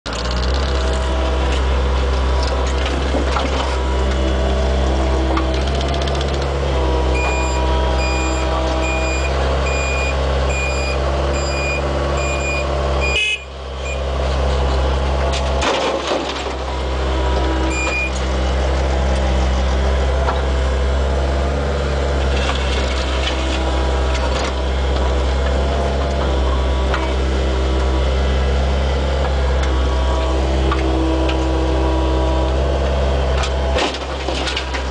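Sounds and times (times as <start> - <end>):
diesel engine running: 0.1 - 34.9
reversing beeper: 7.1 - 14.1, 17.6 - 18.2.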